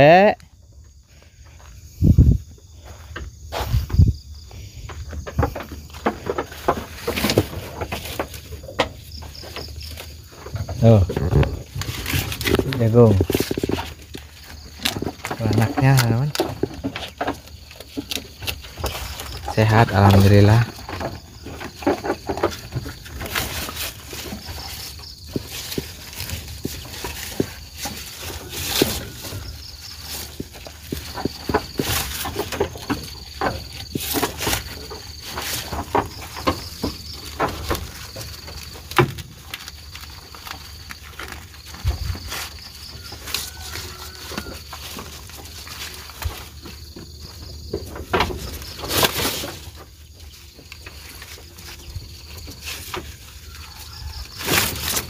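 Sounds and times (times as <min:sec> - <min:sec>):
high insect drone: 0:00.0 - 0:55.0
handling knocks and rustles: 0:01.2 - 0:55.0
faint insect trilling: 0:39.7 - 0:47.8, 0:48.4 - 0:55.0.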